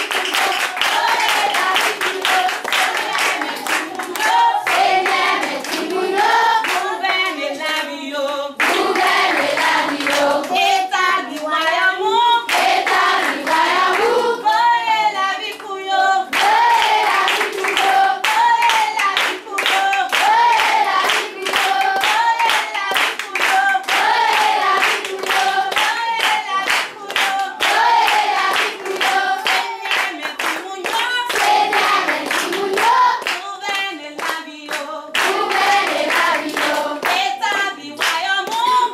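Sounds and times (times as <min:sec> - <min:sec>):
hand clapping: 0:00.0 - 0:07.4, 0:08.6 - 0:11.6, 0:12.5 - 0:14.2, 0:15.4 - 0:38.9
group singing unaccompanied: 0:00.0 - 0:38.9.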